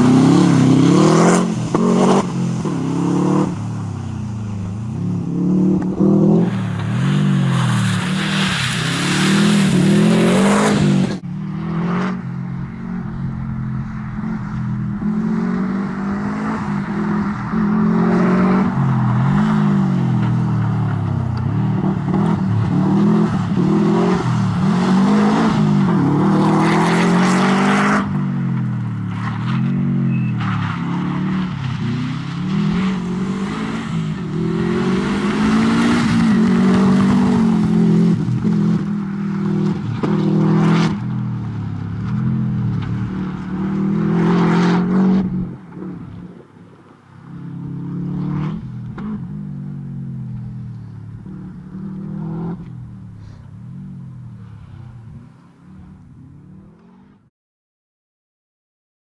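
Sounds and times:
rally car engine revving: 0.0s - 4.0s, 4.9s - 46.5s, 47.3s - 53.4s.

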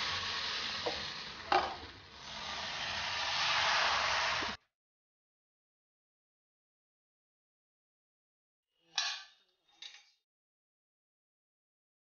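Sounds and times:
batter sizzling in hot pan: 0.0s - 4.6s
knock on pan: 0.9s - 1.8s.

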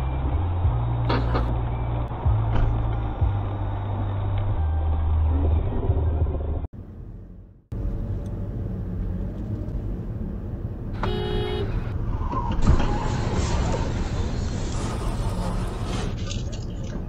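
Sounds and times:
car engine and tyre noise: 0.0s - 17.0s
car horn: 11.0s - 12.0s.

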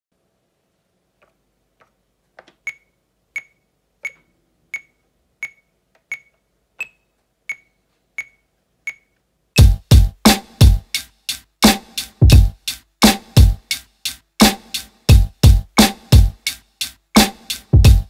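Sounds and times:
electronic metronome clicking: 2.5s - 9.8s.

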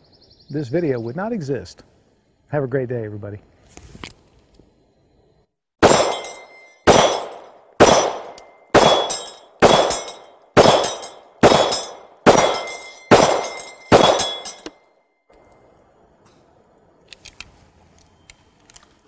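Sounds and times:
pistol shots: 5.8s - 14.8s
bullet ringing on steel target: 5.8s - 14.9s.

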